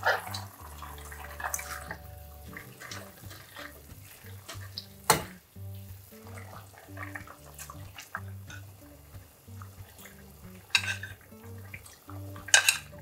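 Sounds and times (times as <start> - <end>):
food stir-frying in a pan: 0.0 - 13.0
soft background music: 0.0 - 13.0
utensils scraping a pan: 9.9 - 11.8, 12.4 - 13.0
metal clank: 10.7 - 11.2.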